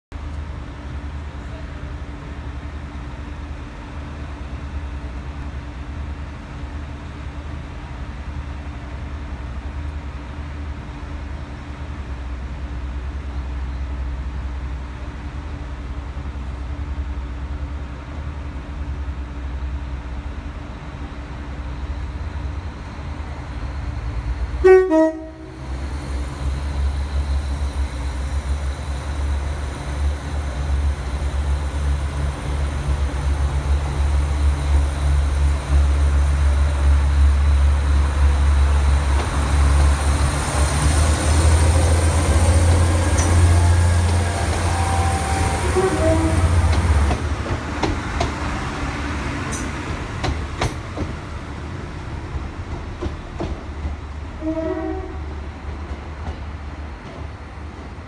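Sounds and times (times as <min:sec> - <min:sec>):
high whine of train: 0:00.1 - 0:58.0
train diesel engine drone: 0:00.1 - 0:58.0
train horn toot: 0:24.6 - 0:25.6, 0:43.3 - 0:47.0, 0:54.4 - 0:55.5.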